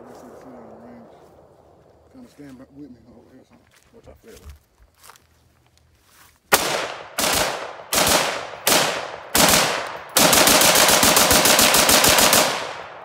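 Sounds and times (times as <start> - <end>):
rifle gunshots: 6.5 - 13.0.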